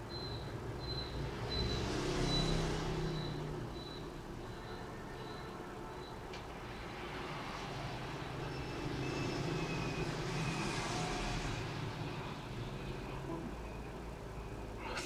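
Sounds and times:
traffic noise: 0.0 - 15.0
vehicle passing by: 1.1 - 4.4, 6.5 - 13.6.

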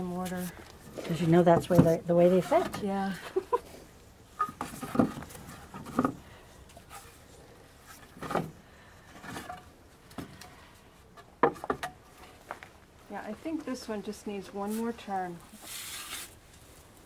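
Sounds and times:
wooden slats knocking and scraping: 1.3 - 3.0, 4.4 - 6.2, 7.9 - 8.6, 11.2 - 12.0.

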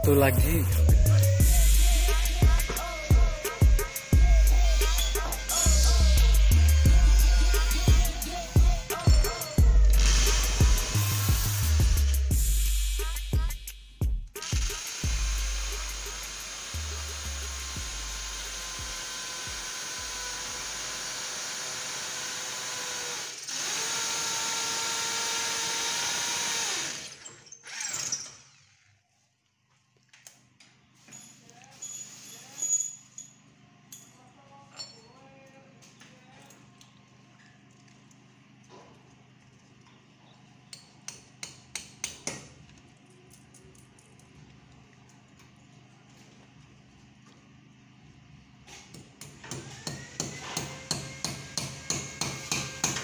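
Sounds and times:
electric drill boring into wall: 1.4 - 12.4, 14.4 - 28.9, 49.4 - 53.0.

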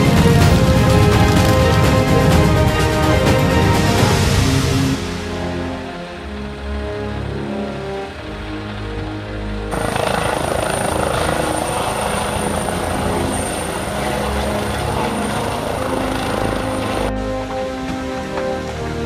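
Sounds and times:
helicopter lifting off: 0.0 - 5.2, 9.7 - 18.2
music: 0.0 - 19.0
steady high whine: 9.7 - 18.1.

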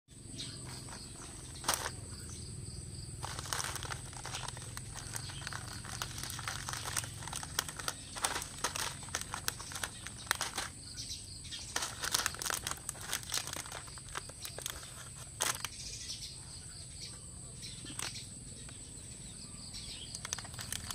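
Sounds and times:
high insect chirring: 0.2 - 17.1, 17.7 - 20.9
foil crisp packets crinkling: 0.6 - 2.2, 3.1 - 10.8, 11.5 - 15.9, 17.8 - 18.2, 20.0 - 20.9.

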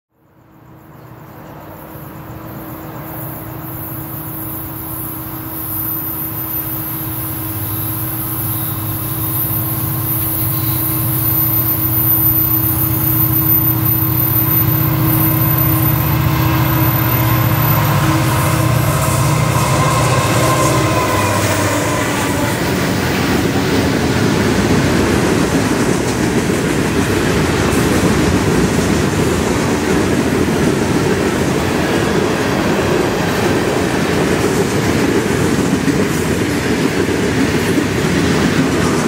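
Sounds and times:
diesel locomotive engine drone: 0.2 - 39.0.

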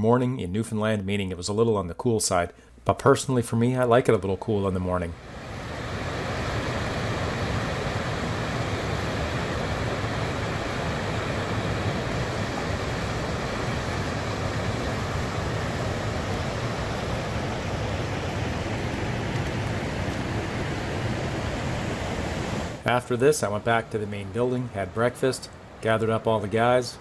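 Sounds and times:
river rapids rushing: 5.2 - 22.8.

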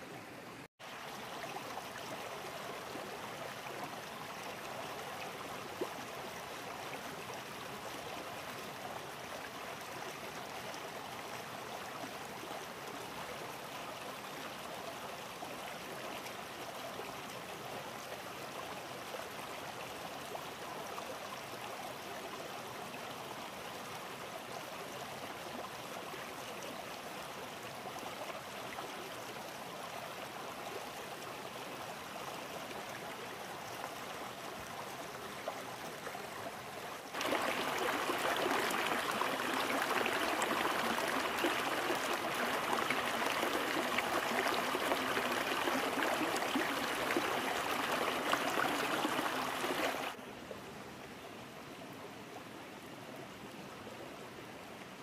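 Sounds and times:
stream water rushing: 0.0 - 13.9, 26.7 - 50.3.

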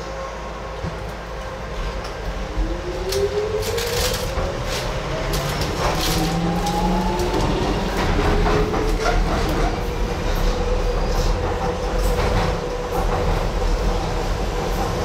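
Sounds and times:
wheels clicking on track: 3.0 - 9.9.

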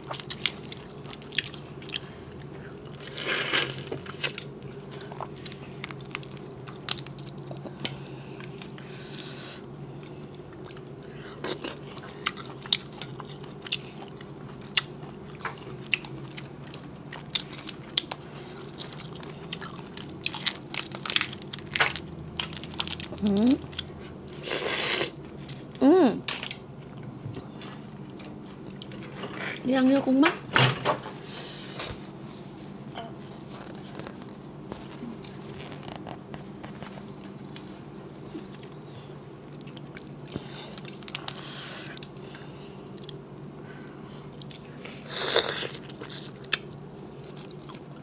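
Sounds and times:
close chewing: 0.0 - 8.9, 10.0 - 24.2, 44.3 - 48.0.

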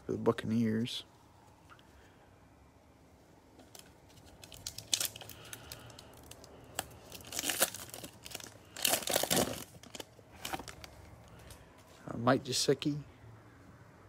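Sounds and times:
foil pack tearing and crinkling: 4.3 - 10.9.

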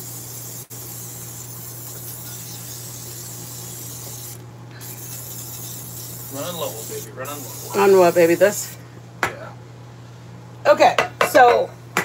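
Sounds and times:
aerosol spray hissing: 0.0 - 8.8.

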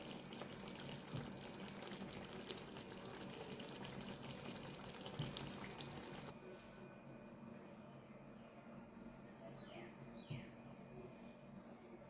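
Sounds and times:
curry bubbling and popping: 0.0 - 6.3.

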